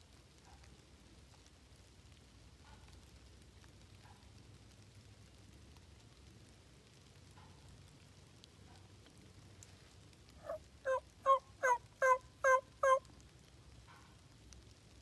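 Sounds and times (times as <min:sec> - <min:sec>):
turkey yelps: 0:10.4 - 0:13.1.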